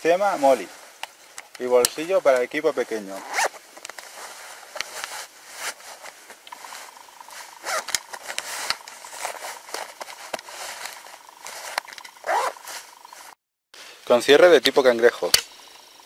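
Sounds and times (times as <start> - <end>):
nylon fabric rustling and scraping: 0.0 - 1.0, 1.6 - 13.4.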